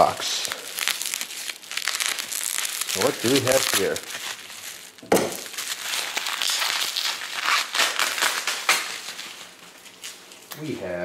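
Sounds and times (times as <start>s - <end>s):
bubble wrap crinkling and crackling: 0.0s - 11.0s.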